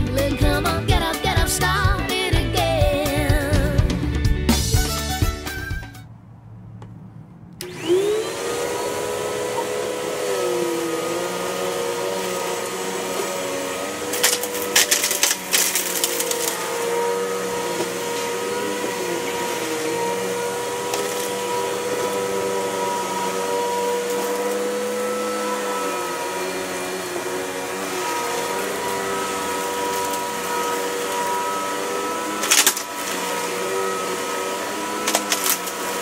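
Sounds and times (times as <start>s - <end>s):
vacuum cleaner motor whine: 7.5s - 36.0s.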